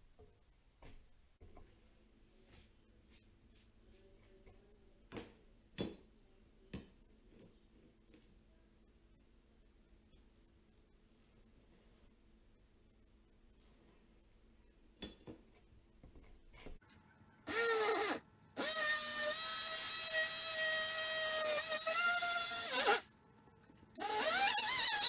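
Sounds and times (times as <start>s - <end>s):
oscillating multi-tool cutting drywall: 17.5s - 23.1s, 24.0s - 25.0s.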